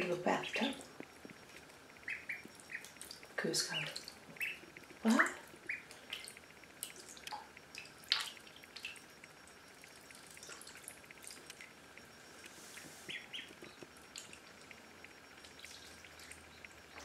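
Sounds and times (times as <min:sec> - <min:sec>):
duckling peeps: 0:00.0 - 0:06.5, 0:12.7 - 0:14.3
light water splashes and drips: 0:05.5 - 0:09.1, 0:10.0 - 0:11.7, 0:14.1 - 0:14.8.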